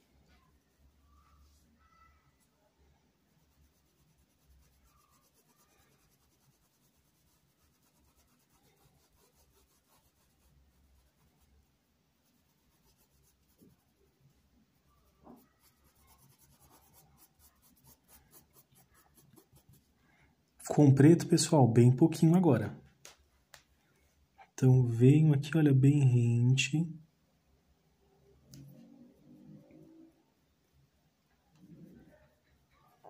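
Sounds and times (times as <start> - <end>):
paintbrush strokes on fabric: 3.2 - 20.0.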